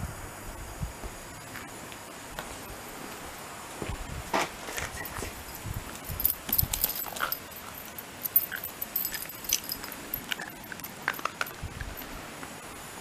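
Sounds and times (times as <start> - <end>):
dog claws clicking on asphalt: 4.7 - 12.0.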